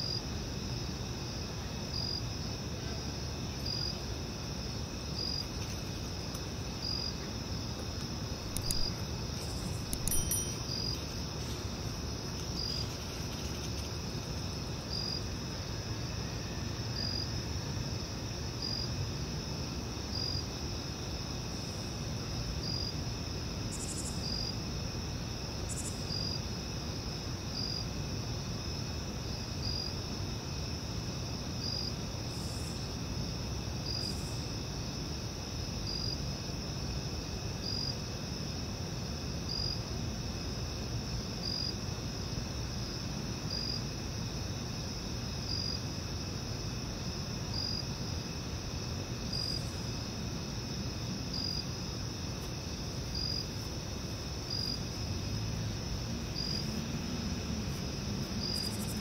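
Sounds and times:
low background hiss: 0.0s - 59.0s
insect chirring: 5.1s - 17.3s, 23.7s - 24.6s, 25.5s - 26.4s, 48.9s - 59.0s
light clicks: 8.0s - 9.0s.

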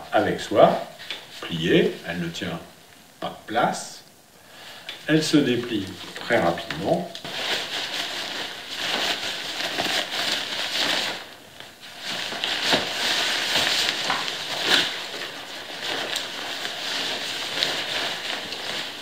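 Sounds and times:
rain cape rustling and crinkling: 0.2s - 2.4s, 5.4s - 19.0s.

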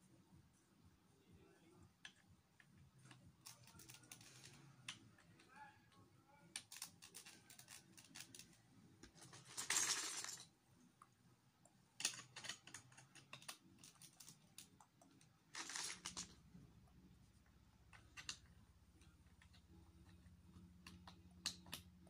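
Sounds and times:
plastic bricks clicking and clattering: 3.0s - 5.4s, 12.0s - 16.4s.

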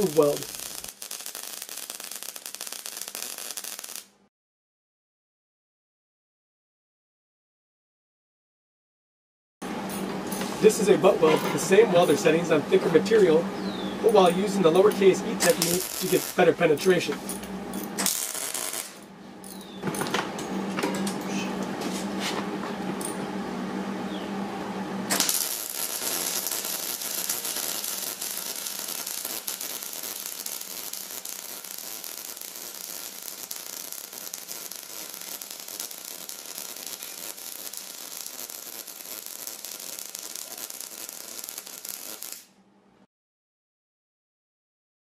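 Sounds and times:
welding arc crackling: 0.0s - 4.2s, 14.0s - 19.0s, 25.1s - 42.6s.

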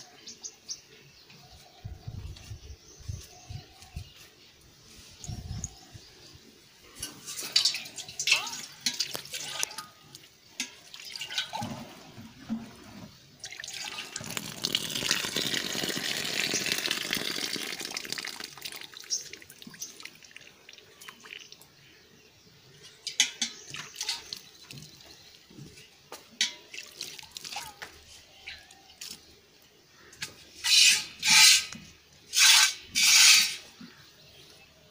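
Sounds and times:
milk squirting into a pail: 12.8s - 21.6s.

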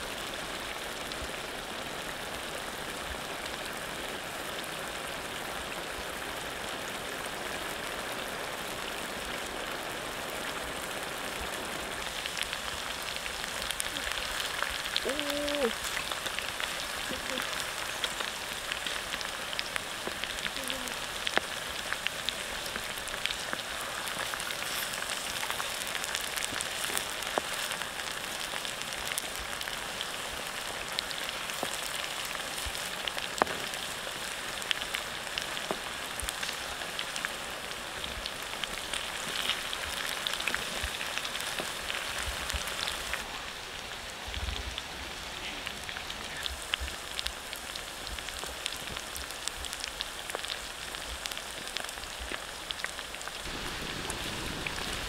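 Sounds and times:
food sizzling in hot oil: 5.6s - 44.1s, 45.6s - 55.0s.

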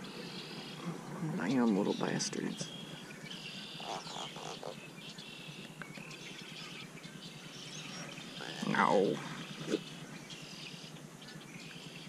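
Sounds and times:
faint outdoor background noise: 0.0s - 12.0s
small birds chirping: 0.0s - 12.0s.

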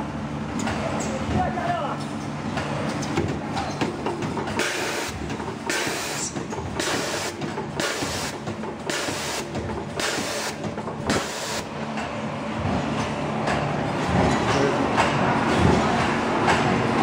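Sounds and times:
bag packing machine clatter: 3.3s - 11.6s.

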